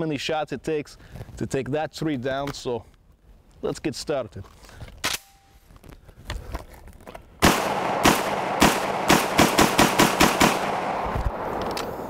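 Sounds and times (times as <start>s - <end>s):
shotgun shots: 7.4s - 12.0s.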